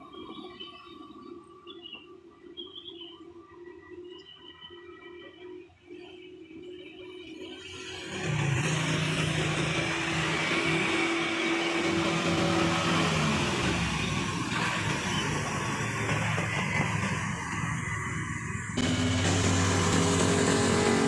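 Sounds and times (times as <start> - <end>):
truck engine: 7.6 - 21.0.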